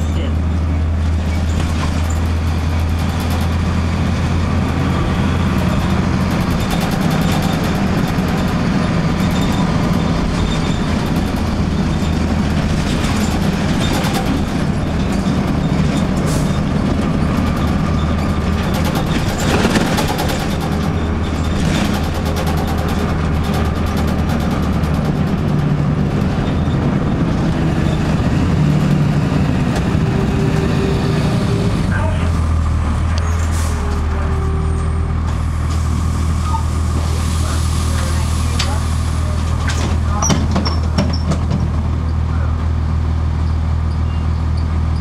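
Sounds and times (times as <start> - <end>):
bus diesel engine droning: 0.0 - 45.0
tyre and road noise: 0.0 - 45.0
interior rattles and clicks: 0.5 - 30.7, 39.5 - 42.4.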